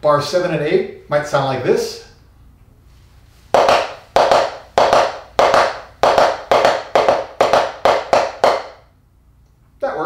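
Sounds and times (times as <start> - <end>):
drumsticks tapping practice pad: 3.5 - 8.9.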